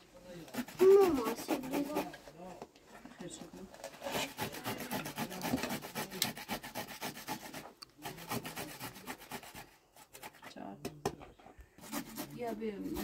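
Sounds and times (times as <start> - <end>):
vegetable rasping on metal grater: 0.4 - 2.1, 3.8 - 10.4, 11.8 - 13.0.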